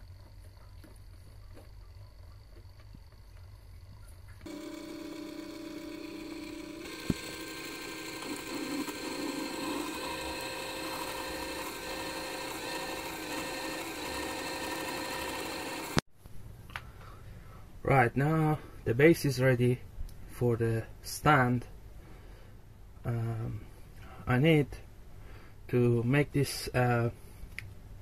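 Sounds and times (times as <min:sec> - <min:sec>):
lathe motor whining: 0:04.4 - 0:16.0
drill boring into metal: 0:04.5 - 0:16.0.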